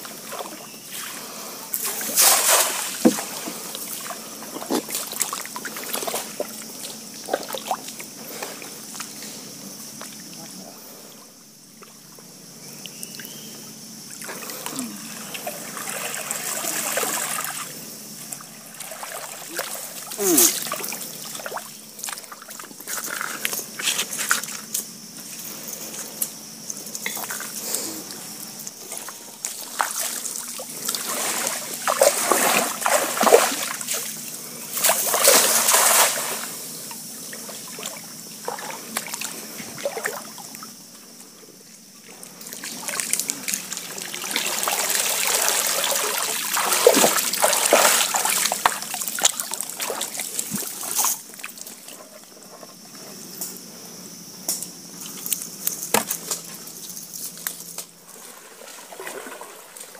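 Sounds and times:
water splashing: 1.8s - 8.1s, 14.2s - 23.5s, 28.8s - 36.6s, 42.5s - 52.0s, 58.1s - 59.9s.

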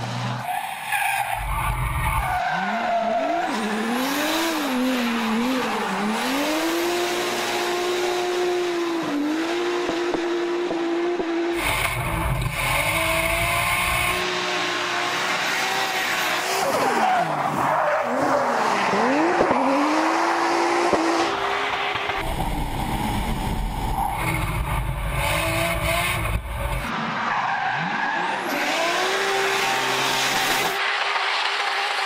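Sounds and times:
car engine revving: 1.4s - 17.2s, 18.0s - 27.0s.

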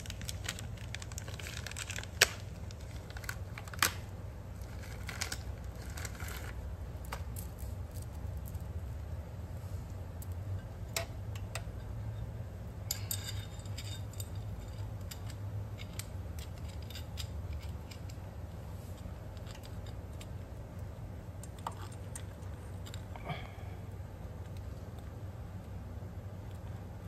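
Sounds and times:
steady low hum: 0.0s - 27.0s
metal chain clinking and rattling: 12.9s - 18.2s.

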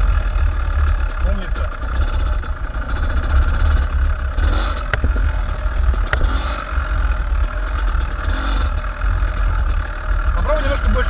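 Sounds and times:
dirt bike engines: 0.0s - 11.0s
wind rumble on microphone: 3.8s - 6.6s
sharp clicks: 4.5s - 6.7s.

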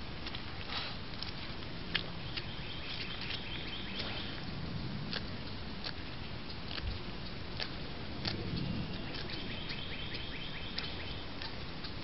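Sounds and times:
high bird trill: 8.6s - 11.2s.

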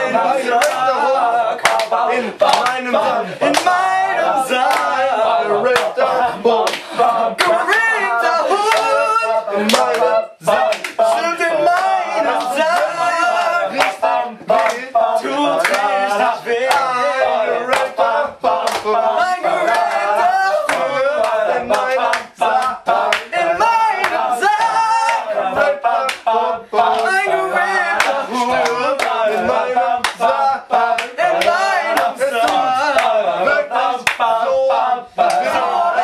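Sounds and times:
men singing together: 0.0s - 36.0s
hand claps: 0.6s - 0.9s, 1.6s - 3.8s, 4.6s - 5.0s, 5.7s - 7.8s, 8.6s - 8.9s, 9.7s - 13.0s, 13.8s - 14.9s, 15.6s - 15.9s, 16.6s - 17.0s, 17.7s - 27.2s, 27.9s - 34.3s, 35.2s - 35.7s.

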